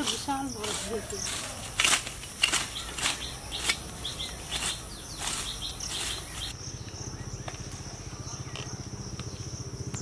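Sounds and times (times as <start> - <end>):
blade hacking at plant stalk: 0.0 - 6.3
birds chirping: 0.0 - 10.0.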